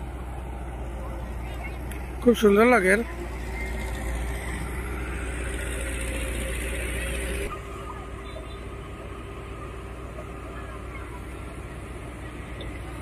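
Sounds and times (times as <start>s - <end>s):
heavy diesel engine: 0.0s - 13.0s
road roller diesel engine: 0.0s - 13.0s.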